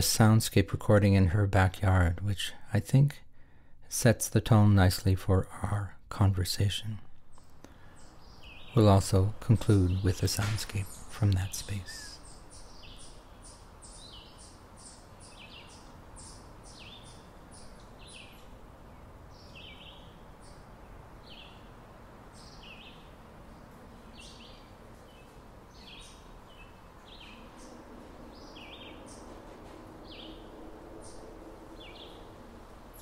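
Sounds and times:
low background hiss: 0.0 - 33.0
small birds chirping: 7.2 - 33.0.

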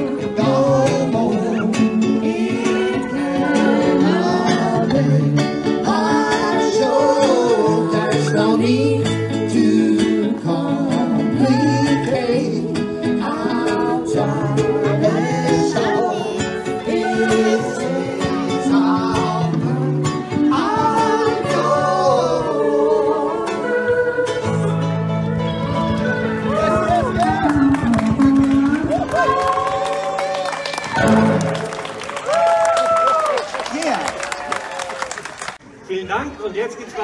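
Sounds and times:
acoustic string band playing: 0.0 - 29.3, 30.8 - 32.1.

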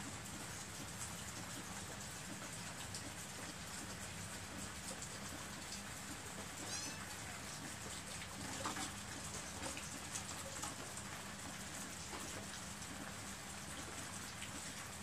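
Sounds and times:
steady rain falling: 0.0 - 15.0
cat meowing: 6.6 - 7.4.

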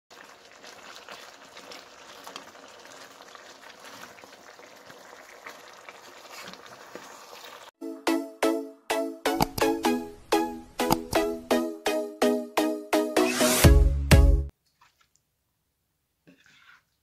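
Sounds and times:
sauce simmering and bubbling: 0.1 - 7.8
wooden spatula stirring: 14.6 - 15.3, 16.2 - 17.0.

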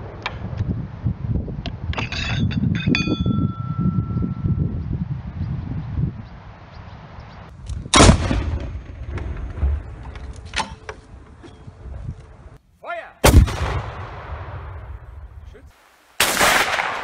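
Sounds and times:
cannon shots: 7.9 - 9.6, 13.2 - 15.1, 16.2 - 17.0.

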